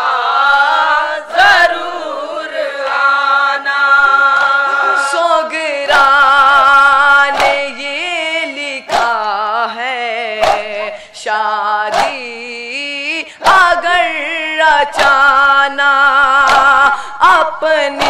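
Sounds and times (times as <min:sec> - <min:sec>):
men singing a lament: 0:00.0 - 0:18.0
hands slapping chests: 0:05.9 - 0:08.0, 0:08.6 - 0:09.6, 0:10.3 - 0:11.1, 0:11.9 - 0:12.5, 0:13.4 - 0:14.2, 0:14.8 - 0:18.0.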